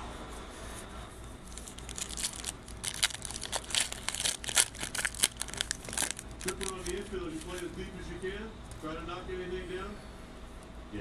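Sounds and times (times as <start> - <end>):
foil wrapper tearing and crinkling: 1.5 - 7.7.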